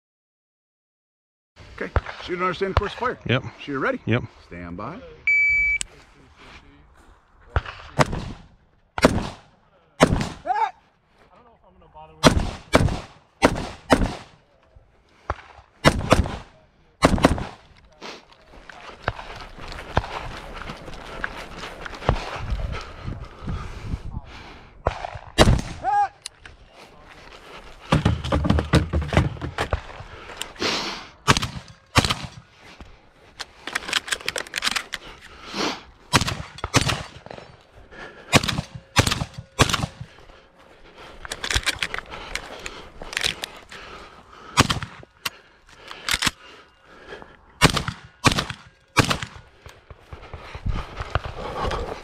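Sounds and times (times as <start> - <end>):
rifle fire: 7.6 - 10.4, 12.2 - 14.4, 15.3 - 17.6, 24.9 - 25.8, 31.2 - 32.4, 36.1 - 37.4, 38.3 - 40.1, 44.6 - 45.0, 47.6 - 49.5
shotgun shots: 7.6 - 10.4, 12.2 - 14.4, 15.3 - 17.6, 24.9 - 25.8, 31.2 - 32.5, 36.1 - 37.4, 38.3 - 40.1, 44.6 - 45.0, 47.6 - 49.5.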